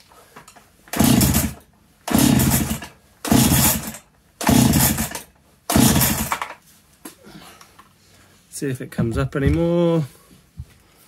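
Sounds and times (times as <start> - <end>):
chainsaw pull-start cranking: 0.8 - 6.6.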